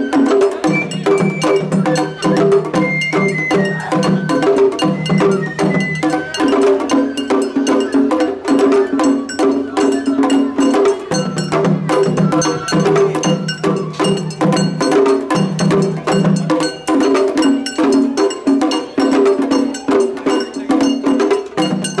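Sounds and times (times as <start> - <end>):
held melody line: 0.0 - 14.5
drum strikes: 0.0 - 22.0.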